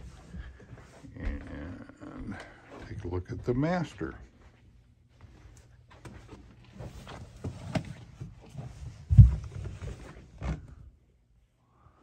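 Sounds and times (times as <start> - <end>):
footsteps: 0.0 - 10.6
rustling handling noise: 3.9 - 10.9
heavy thump: 9.1 - 9.6.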